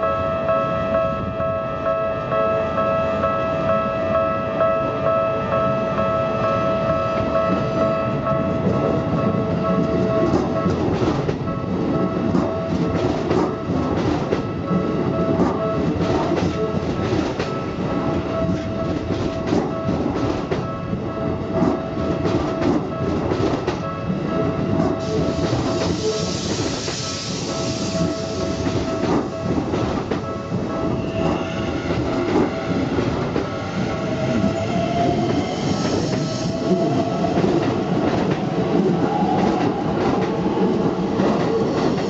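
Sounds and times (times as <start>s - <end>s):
crossing warning bell ringing: 0.0s - 42.0s.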